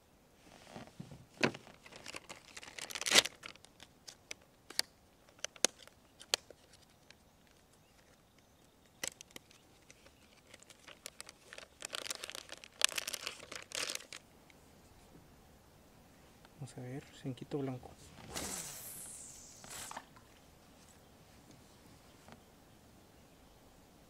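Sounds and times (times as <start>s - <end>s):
plastic package crinkling: 1.4s - 8.2s, 8.9s - 14.2s.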